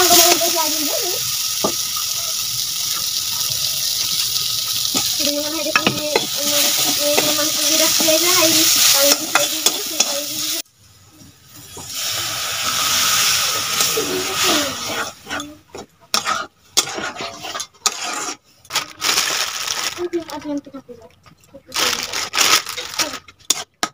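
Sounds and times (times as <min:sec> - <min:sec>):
water poured into hot pan: 0:00.0 - 0:05.7, 0:11.6 - 0:14.9
food sizzling in oil: 0:00.0 - 0:18.4
metal spatula scraping a pan: 0:04.9 - 0:10.6, 0:12.7 - 0:18.6, 0:23.4 - 0:23.9.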